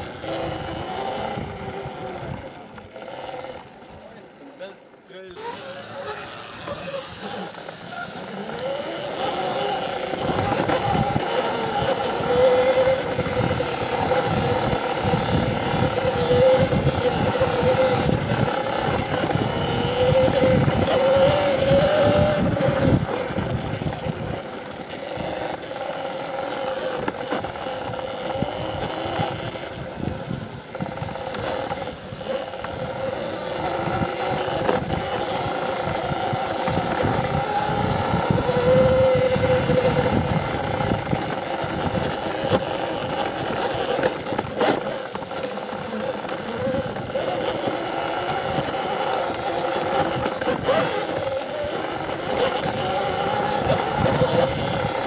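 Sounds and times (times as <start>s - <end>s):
electric motor whining: 0.0s - 55.0s.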